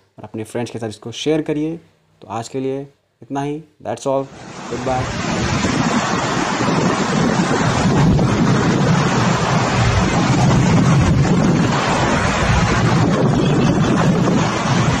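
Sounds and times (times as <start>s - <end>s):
jet airliner roaring: 4.3s - 15.0s
wind buffeting microphone: 4.4s - 15.0s.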